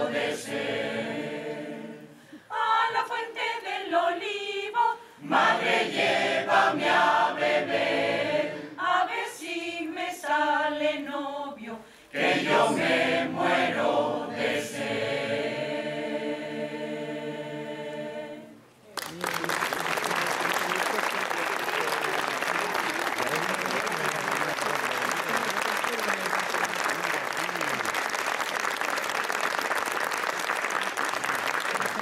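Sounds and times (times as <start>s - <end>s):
mixed choir singing a cappella: 0.0s - 18.7s.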